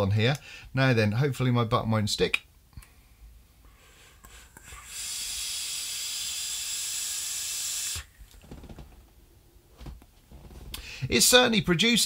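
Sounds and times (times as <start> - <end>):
soft exhale: 2.8 - 8.1
vape hiss and sizzling coil: 4.2 - 8.1.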